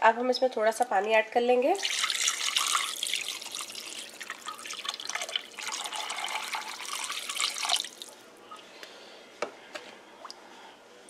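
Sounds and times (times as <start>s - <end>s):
water pouring into steel pot: 1.8s - 8.2s.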